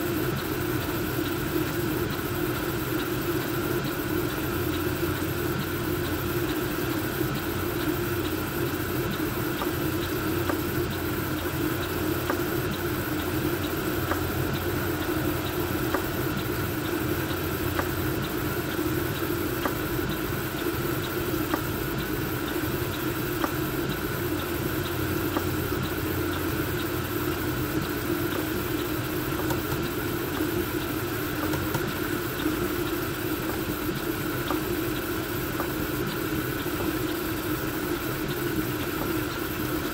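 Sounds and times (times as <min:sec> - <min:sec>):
blower fans whirring: 0:00.0 - 0:39.9.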